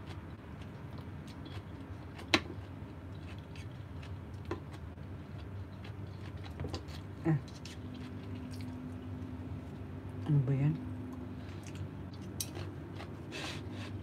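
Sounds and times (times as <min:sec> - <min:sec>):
low steady hum: 0:00.0 - 0:14.0
soft chewing: 0:00.0 - 0:14.0.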